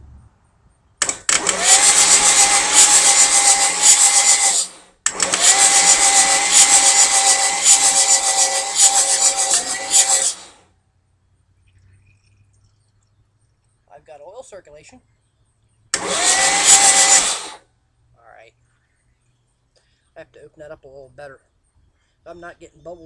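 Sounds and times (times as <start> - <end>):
starter motor cranking engine: 1.0 - 10.6, 15.9 - 17.6.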